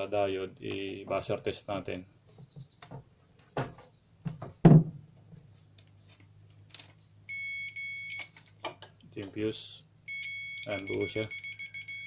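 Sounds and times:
multimeter continuity beep: 7.3 - 8.3, 10.1 - 12.0.

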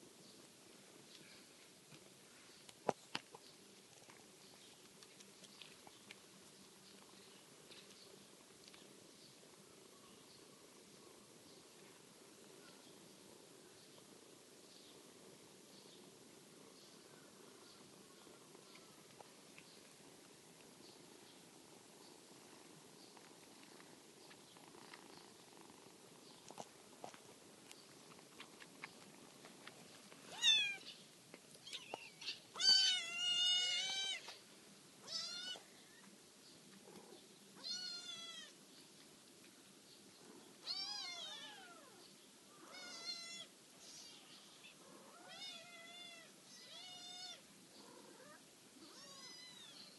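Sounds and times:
cat meowing: 30.3 - 30.8, 35.0 - 35.6, 37.6 - 38.5, 40.6 - 42.0, 45.1 - 47.4, 48.2 - 49.8.

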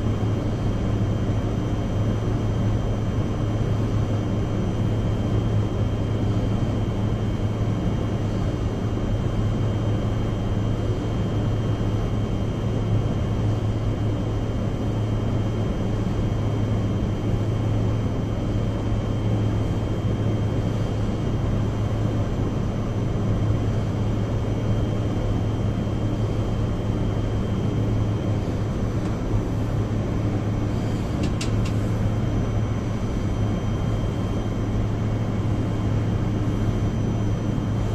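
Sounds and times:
cabinet blower droning: 26.5 - 37.9.

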